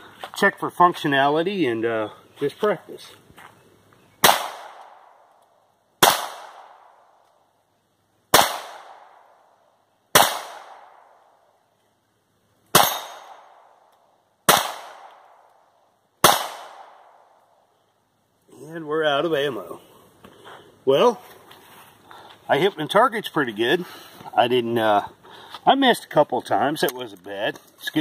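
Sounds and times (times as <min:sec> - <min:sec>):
pistol shots with echo: 0:04.2 - 0:05.2, 0:06.0 - 0:07.1, 0:08.3 - 0:09.4, 0:10.1 - 0:11.3, 0:12.7 - 0:13.8, 0:14.5 - 0:15.4, 0:16.2 - 0:17.4.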